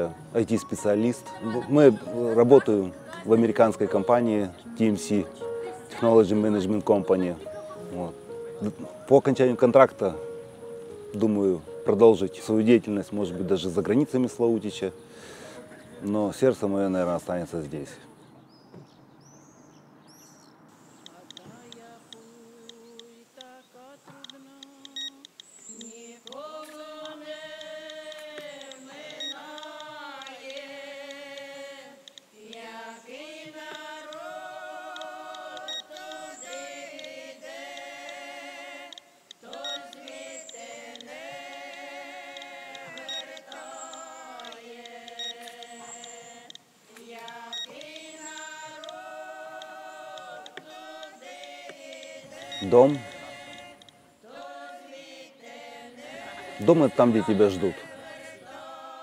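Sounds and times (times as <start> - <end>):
singer breathing: 15.0 - 15.8
person singing long held notes: 21.1 - 55.1.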